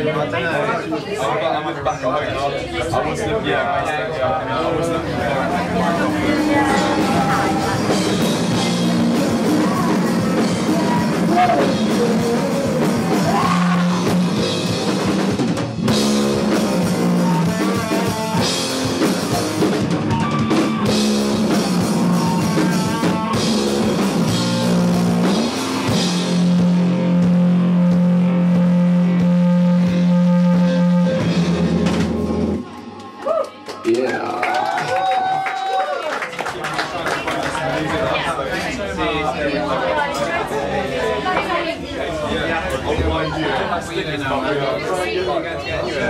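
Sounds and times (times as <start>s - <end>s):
electric guitar: 5.0s - 33.1s
drum kit with cymbals: 5.3s - 32.7s
person singing: 5.4s - 14.6s.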